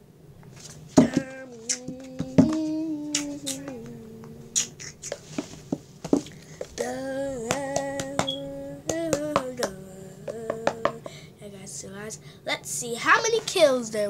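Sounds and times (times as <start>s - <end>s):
child humming: 1.0s - 5.2s, 6.8s - 11.3s.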